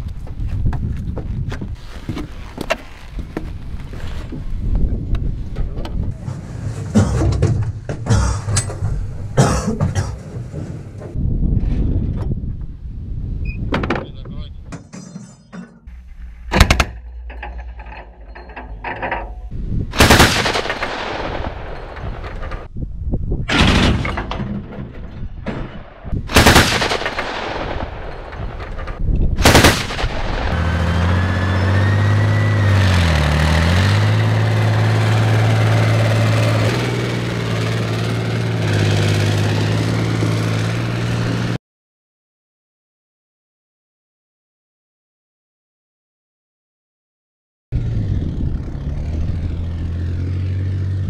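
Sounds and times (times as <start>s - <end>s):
autocannon firing bursts: 20.0s - 22.5s, 26.3s - 28.5s, 29.4s - 30.6s
vehicle engine running: 30.5s - 41.6s, 47.8s - 51.0s.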